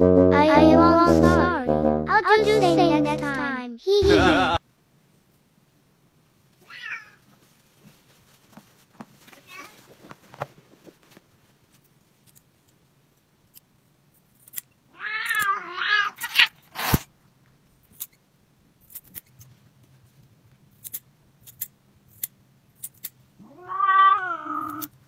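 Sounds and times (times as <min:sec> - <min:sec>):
cat yowling: 0:06.6 - 0:07.2, 0:14.9 - 0:16.6, 0:23.4 - 0:24.9
nail clippers snapping and clicking: 0:14.4 - 0:15.5, 0:20.8 - 0:23.2.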